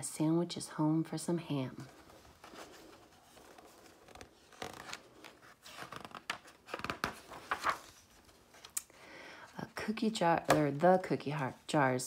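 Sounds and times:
book page rustling: 1.7s - 8.8s.

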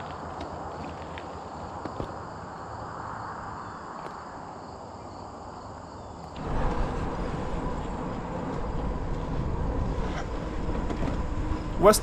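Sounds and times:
bicycle tyre and road noise: 0.0s - 12.0s
wind rumble on microphone: 6.4s - 12.0s.

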